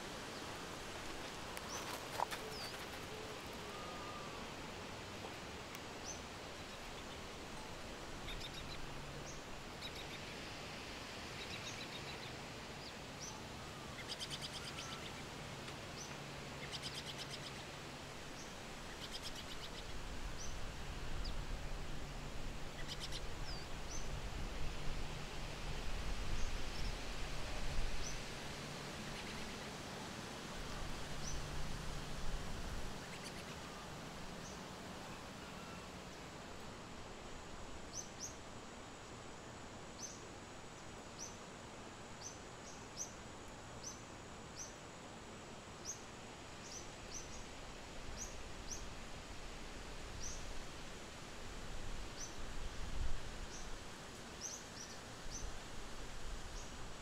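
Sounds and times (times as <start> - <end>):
small birds chirping: 1.5 - 4.4, 33.0 - 33.6.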